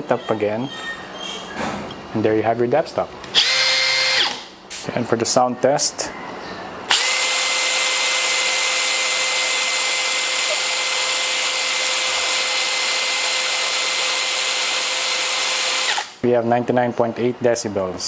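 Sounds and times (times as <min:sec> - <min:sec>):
cordless drill whining: 0:03.3 - 0:04.5, 0:06.9 - 0:16.2.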